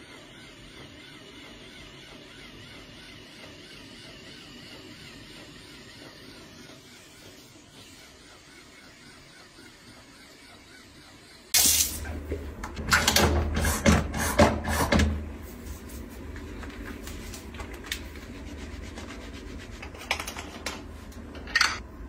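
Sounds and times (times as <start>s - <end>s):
steady low hum: 0.0s - 22.0s
soapy hands being rubbed: 15.4s - 20.6s.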